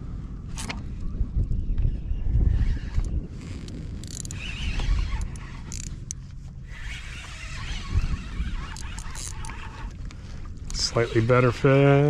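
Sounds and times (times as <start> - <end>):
wind rumbling on microphone: 0.0 - 12.0
spinning reel winding: 4.0 - 10.0.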